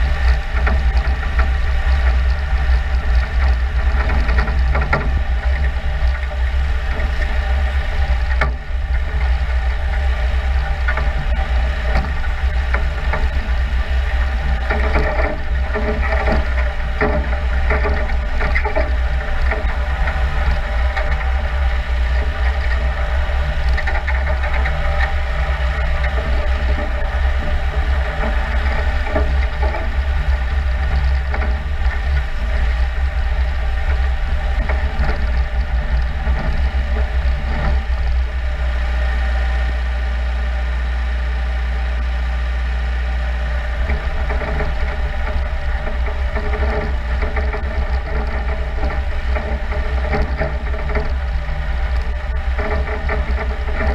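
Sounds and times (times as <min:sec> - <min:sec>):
deep low hum: 0:00.0 - 0:53.9
tracked machine engine running: 0:00.0 - 0:53.9
rubber tracks rattling: 0:43.5 - 0:53.9.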